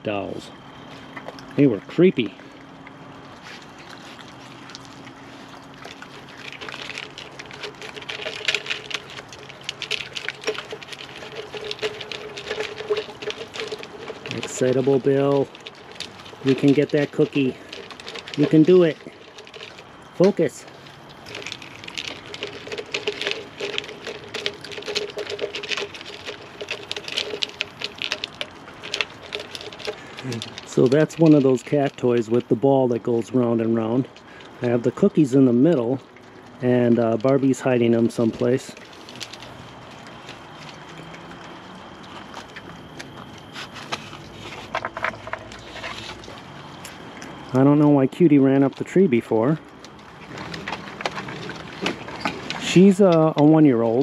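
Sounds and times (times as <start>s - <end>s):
plastic toy clicking and rattling: 6.1s - 32.5s.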